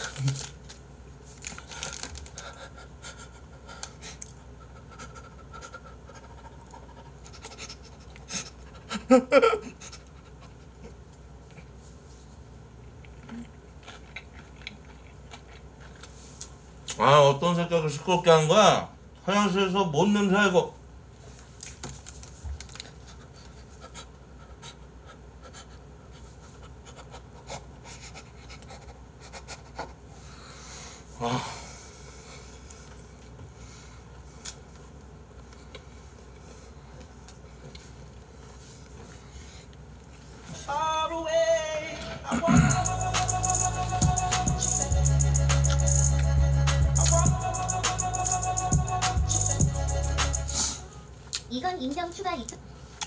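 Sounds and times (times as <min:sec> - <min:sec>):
chewing clicks and rustles: 0:00.0 - 0:02.6, 0:12.8 - 0:17.0, 0:21.4 - 0:23.8
person chewing food: 0:12.8 - 0:17.0, 0:34.1 - 0:40.2, 0:42.6 - 0:50.5
muffled vocal outburst: 0:41.7 - 0:50.9
nose breathing: 0:49.0 - 0:50.9.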